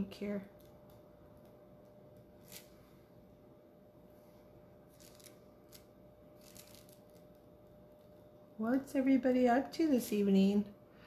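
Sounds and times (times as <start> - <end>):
faint steady hum: 0.0 - 11.0
soft scratchy sounds: 4.2 - 8.4.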